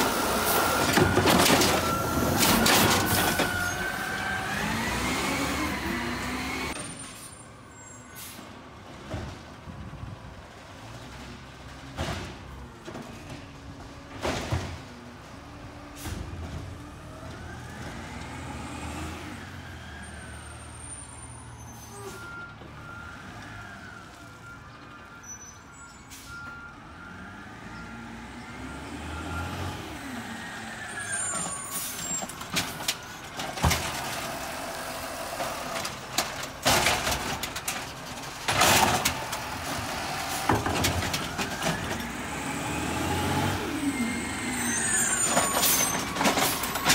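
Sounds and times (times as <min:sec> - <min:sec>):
garbage truck diesel engine revving: 0:00.0 - 0:06.8, 0:26.8 - 0:46.9
truck beeps: 0:00.0 - 0:08.4, 0:16.9 - 0:34.0, 0:38.3 - 0:46.9.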